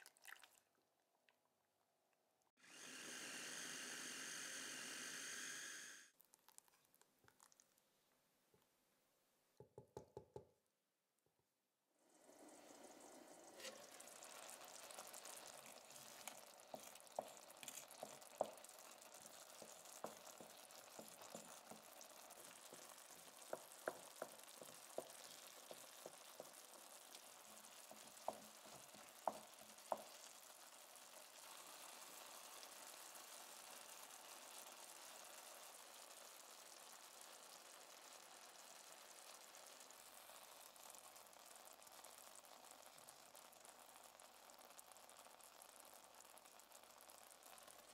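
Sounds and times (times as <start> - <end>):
sauce sizzling in a pan: 2.6 - 6.1, 12.0 - 47.9
wooden spoon knocking against pan: 9.6 - 10.6, 16.7 - 30.3.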